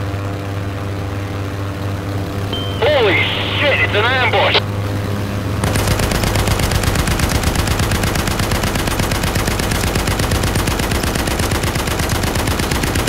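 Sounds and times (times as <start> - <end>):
propeller plane engine drone: 0.0 - 13.0
machine-gun fire: 5.6 - 13.0.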